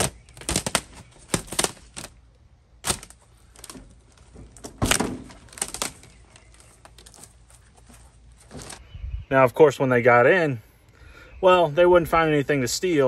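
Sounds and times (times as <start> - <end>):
knife tearing plastic: 0.0 - 2.2, 2.8 - 3.8, 4.8 - 7.2.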